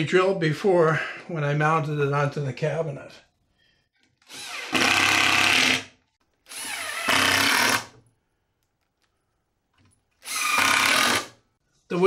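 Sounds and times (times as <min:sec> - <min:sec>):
cordless drill driving screws: 0:04.2 - 0:07.9, 0:10.2 - 0:11.4.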